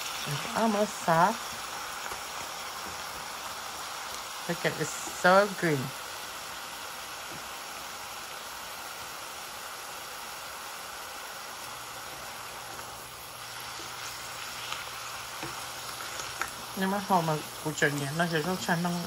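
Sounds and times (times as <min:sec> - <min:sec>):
greens sizzling in oil: 0:00.0 - 0:19.0
wooden spatula stirring clicks: 0:13.7 - 0:16.7.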